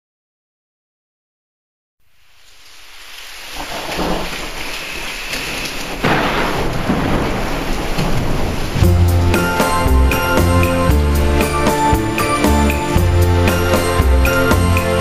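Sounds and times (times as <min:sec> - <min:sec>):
steady rain: 0:02.0 - 0:15.0
thunder burst: 0:03.6 - 0:15.0.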